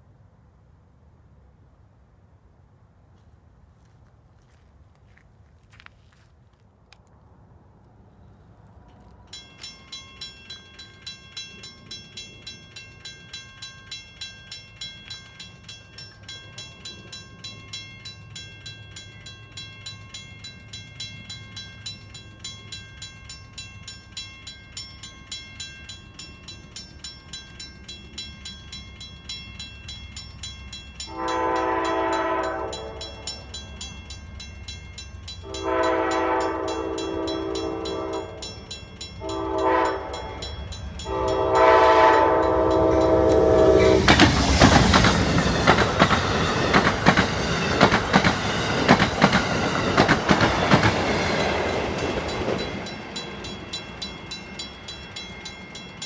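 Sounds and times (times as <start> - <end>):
crossing warning bell ringing: 9.0 - 56.0
diesel locomotive rumble: 25.4 - 56.0
locomotive horn blasts: 31.1 - 33.3, 35.4 - 38.5, 39.2 - 44.1.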